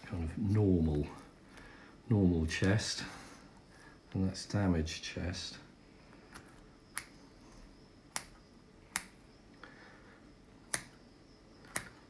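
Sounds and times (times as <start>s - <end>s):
sharp clicks of dissecting instrument: 6.3s - 9.3s, 10.6s - 11.0s, 11.6s - 12.0s.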